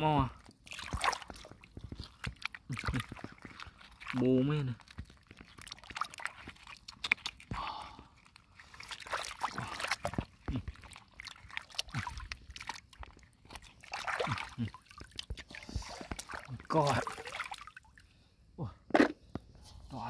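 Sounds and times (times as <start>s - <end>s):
hands squelching in mud and water: 0.0s - 18.2s.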